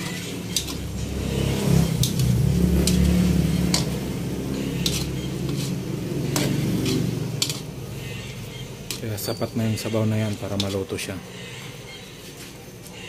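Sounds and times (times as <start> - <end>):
metal spoon scraping a wok: 0.0 - 13.0.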